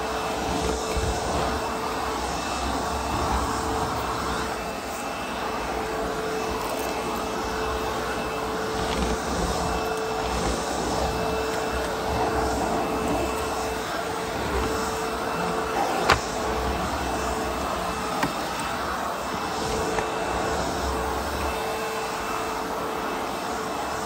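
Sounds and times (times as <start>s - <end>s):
floor tool pushed across carpet: 0.0s - 23.5s
vacuum motor whine: 0.0s - 24.0s.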